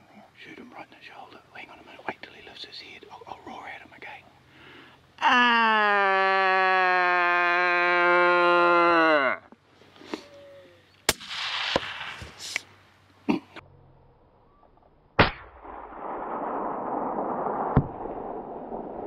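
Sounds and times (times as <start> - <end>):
steady rushing hiss: 0.0 - 5.2, 11.1 - 13.3
rifle shot: 11.1 - 12.6, 15.2 - 19.0.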